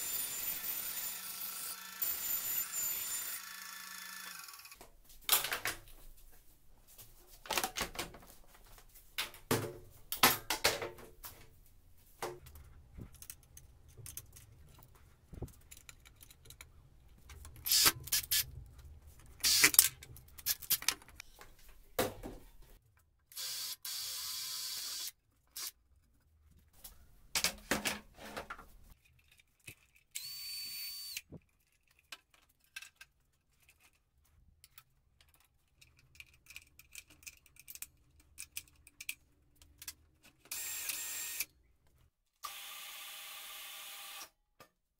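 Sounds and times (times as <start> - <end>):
power drill whining: 0.0 - 4.8, 23.4 - 25.1, 30.2 - 31.2, 40.5 - 41.5, 42.4 - 44.3.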